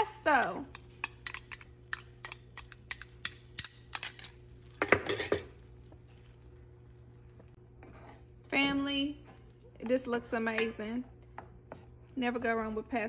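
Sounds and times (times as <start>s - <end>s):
spoon clinking against a jar: 0.4s - 5.5s.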